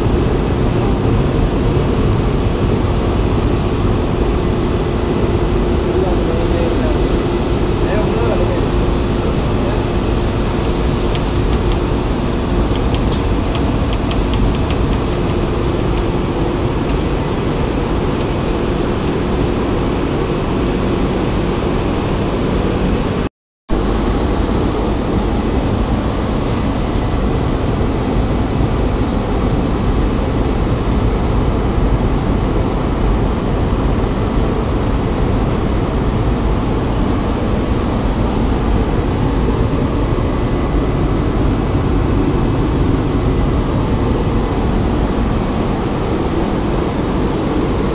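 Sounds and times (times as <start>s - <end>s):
compressed air hissing: 23.8s - 31.1s.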